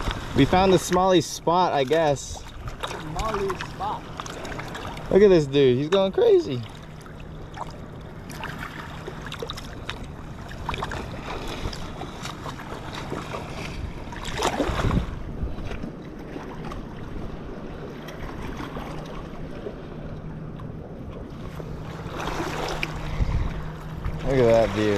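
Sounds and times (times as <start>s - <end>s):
waves lapping on rocks: 0.0s - 16.9s, 21.3s - 24.9s
wind on microphone: 13.6s - 15.9s, 22.8s - 24.9s.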